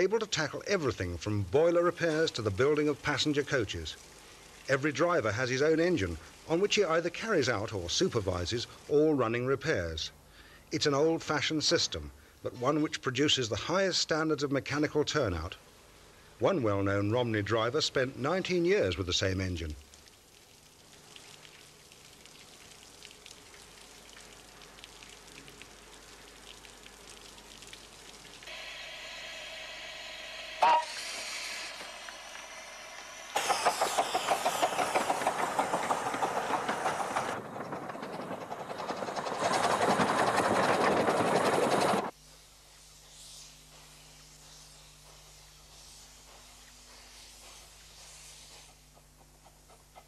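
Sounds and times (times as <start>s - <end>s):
steam hissing: 0.0s - 9.2s, 28.4s - 49.0s
steam locomotive exhaust beats: 28.5s - 50.0s.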